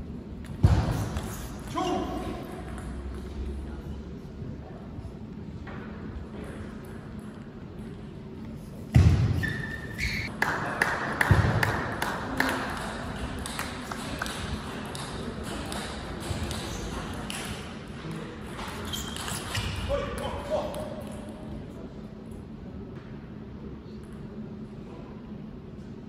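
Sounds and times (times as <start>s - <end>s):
table tennis ball bouncing: 2.4s - 3.4s, 10.4s - 17.7s
short high squeak: 9.4s - 10.3s.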